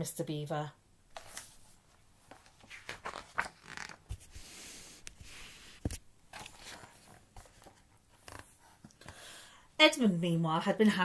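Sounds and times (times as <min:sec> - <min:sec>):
paper rustling and scraping: 0:01.2 - 0:08.7.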